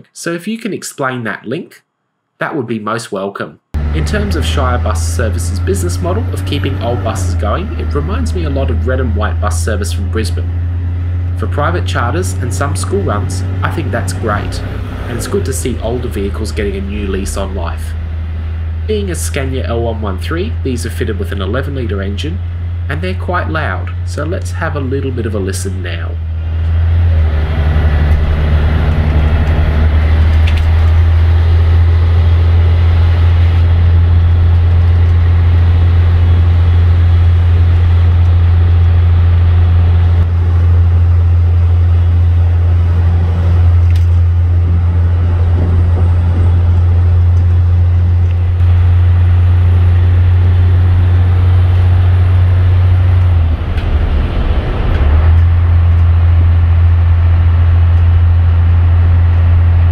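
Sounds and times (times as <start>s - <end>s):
diesel engine drone: 3.7s - 59.9s.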